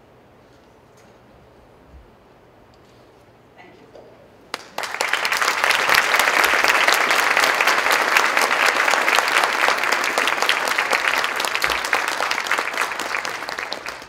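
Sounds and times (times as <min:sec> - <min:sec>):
crowd applauding: 0:04.5 - 0:14.0.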